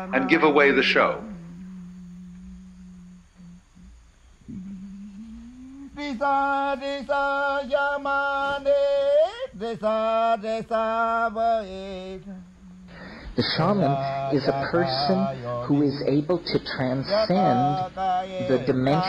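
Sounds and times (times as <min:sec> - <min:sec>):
low steady drone: 0:00.0 - 0:08.3
person chanting: 0:00.0 - 0:19.0.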